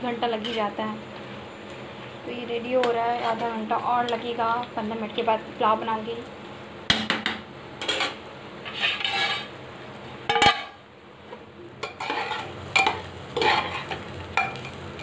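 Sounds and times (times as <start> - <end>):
metal spatula scraping pans: 2.8 - 4.2, 7.8 - 9.6, 10.3 - 10.8, 11.8 - 14.8.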